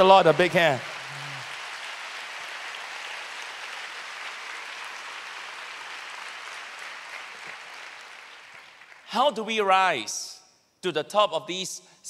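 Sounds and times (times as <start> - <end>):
crowd applauding: 0.0 - 9.1.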